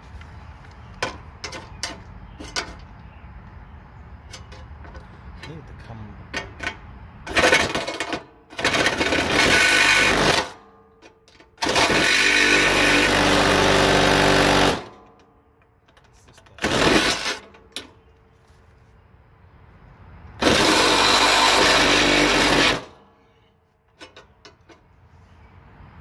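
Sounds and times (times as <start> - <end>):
reciprocating saw cutting metal: 7.3 - 10.6, 11.6 - 14.9, 16.6 - 17.5, 20.4 - 23.0.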